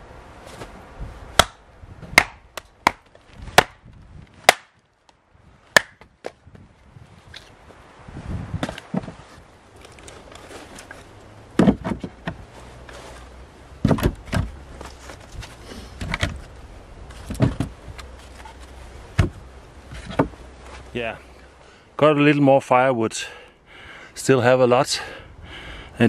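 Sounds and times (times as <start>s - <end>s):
firewood clunking onto wooden shelves: 8.6s - 11.0s, 11.6s - 12.4s, 13.8s - 16.5s, 17.1s - 18.6s, 19.2s - 20.4s.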